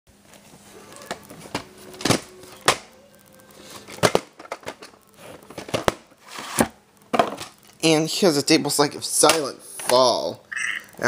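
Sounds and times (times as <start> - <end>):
tape box knocks and clicks: 3.9 - 7.6.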